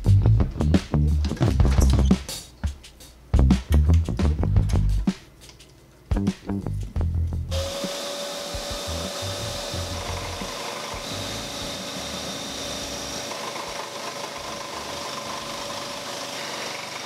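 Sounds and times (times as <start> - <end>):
motor hum: 7.5 - 17.0
scroll saw cutting wood: 7.5 - 17.0.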